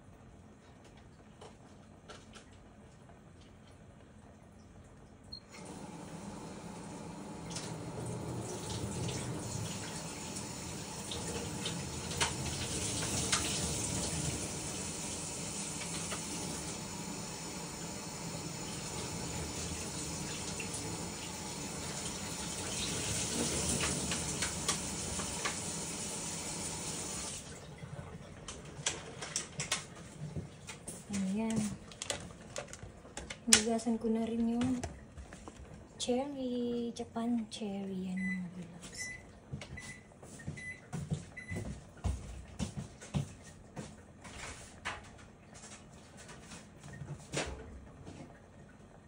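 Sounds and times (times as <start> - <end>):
tap water running: 3.4 - 36.0.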